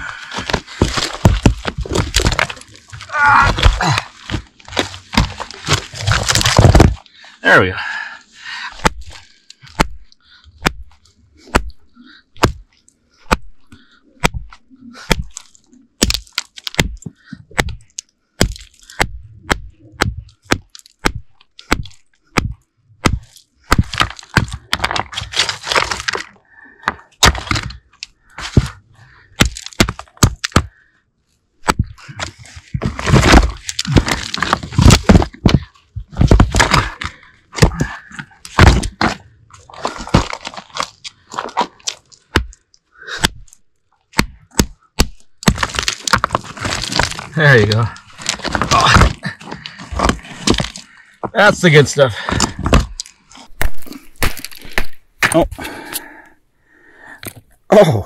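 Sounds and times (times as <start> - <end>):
crunching and scraping on loose rock: 0.0 - 31.0, 31.6 - 57.7
hammer striking rock: 9.7 - 10.0, 11.5 - 11.8, 12.4 - 12.6, 14.2 - 15.3, 16.0 - 17.8, 18.4 - 25.1, 29.4 - 30.7, 33.0 - 39.2, 42.3 - 42.6, 43.2 - 43.5, 44.1 - 47.2.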